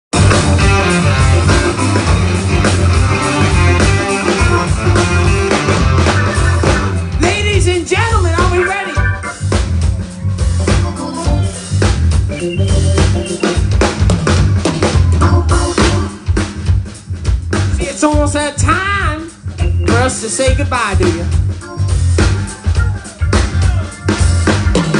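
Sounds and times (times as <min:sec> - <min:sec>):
organ-sounding keyboard: 0:00.1 - 0:17.0, 0:17.6 - 0:24.9
drum kit steady beat: 0:00.1 - 0:24.9
electric guitars: 0:00.2 - 0:16.3
bending sliding guitar notes: 0:08.4 - 0:14.3.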